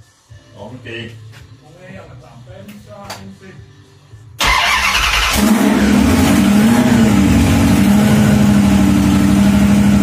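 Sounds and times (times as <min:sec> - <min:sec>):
supercharged car engine idling: 0:04.4 - 0:10.0.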